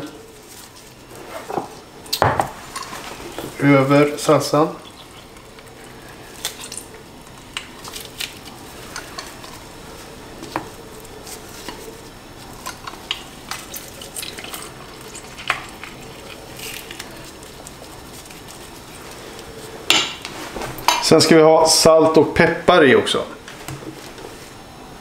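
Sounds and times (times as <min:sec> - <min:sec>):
juice dripping: 0:03.0 - 0:20.3.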